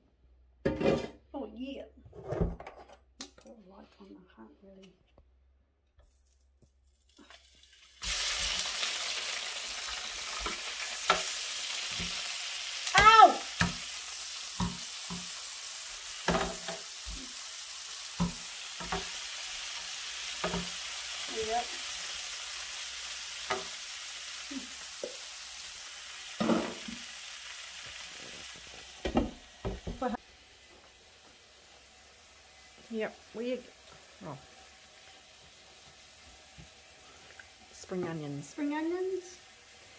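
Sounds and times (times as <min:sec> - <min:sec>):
meat sizzling in hot oil: 0:07.2 - 0:39.9
metal tongs clacking on pan: 0:20.4 - 0:20.7.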